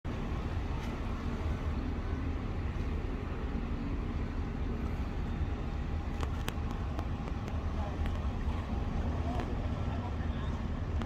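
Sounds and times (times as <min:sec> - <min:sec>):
low rumble of city background noise: 0:00.0 - 0:11.0.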